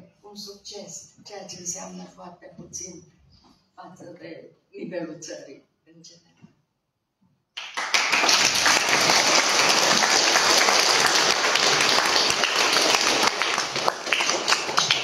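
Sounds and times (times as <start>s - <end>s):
audience clapping: 7.6s - 15.0s.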